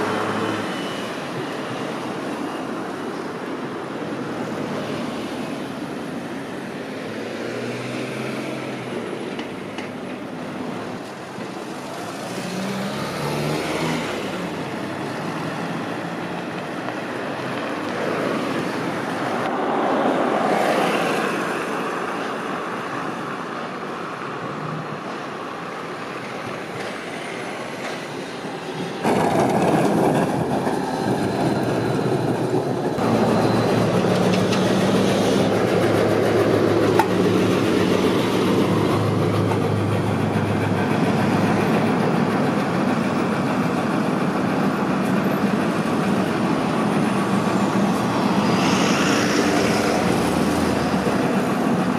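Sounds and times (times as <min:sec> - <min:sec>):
road traffic: 0:00.0 - 0:51.9
tram rolling along track: 0:00.0 - 0:51.9
tram low hum: 0:25.2 - 0:51.9
truck engine passing: 0:33.0 - 0:44.4.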